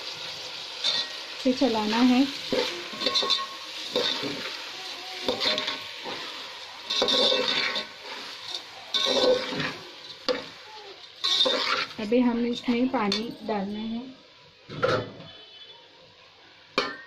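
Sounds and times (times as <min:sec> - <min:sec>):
rice sizzling in oil: 0:00.0 - 0:14.6
spoon scraping metal pot: 0:02.5 - 0:04.5, 0:05.2 - 0:10.5, 0:11.1 - 0:12.0.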